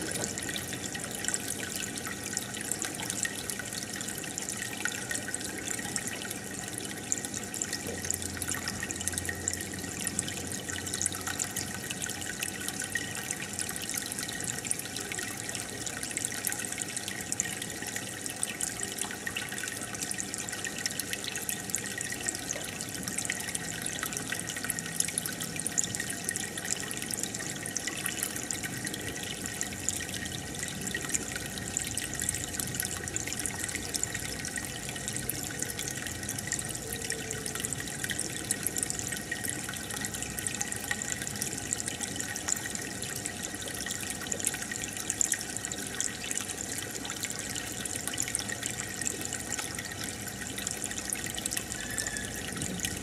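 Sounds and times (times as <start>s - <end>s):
aquarium water bubbling: 0.0s - 53.0s.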